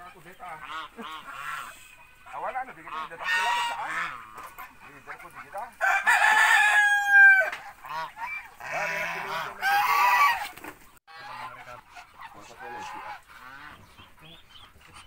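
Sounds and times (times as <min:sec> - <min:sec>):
geese honking: 0:00.0 - 0:15.0
rooster crowing: 0:05.8 - 0:07.8.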